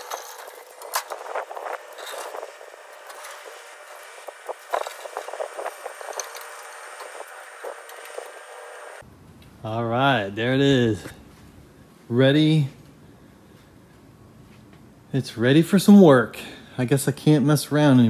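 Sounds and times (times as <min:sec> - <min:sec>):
metal frame clanking and rattling: 0:00.0 - 0:03.6
caster wheels rolling on concrete: 0:00.0 - 0:09.0.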